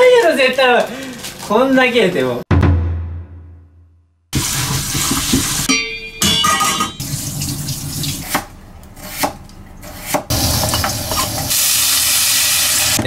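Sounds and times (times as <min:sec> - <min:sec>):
water running from tap: 0:04.4 - 0:05.7, 0:07.0 - 0:08.4, 0:10.3 - 0:13.0
knife chopping on cutting board: 0:08.3 - 0:10.3.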